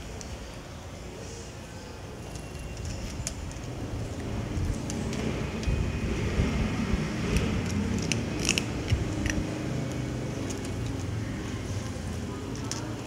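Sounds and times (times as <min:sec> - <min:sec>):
cat crunching dry kibble: 0:07.1 - 0:13.0.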